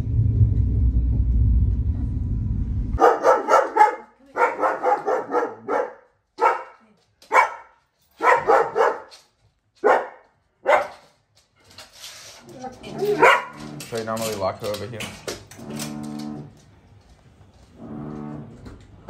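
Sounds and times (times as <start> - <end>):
moving train rumble: 0.0 - 3.6
large dog barking: 3.0 - 9.1, 9.8 - 11.0, 12.9 - 13.8.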